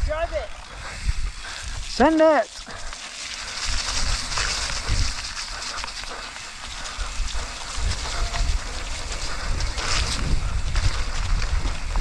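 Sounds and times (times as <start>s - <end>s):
wind on microphone: 0.0s - 2.0s, 2.8s - 12.0s
tyre hiss: 0.6s - 11.1s
bike knocking over rough ground: 7.4s - 12.0s.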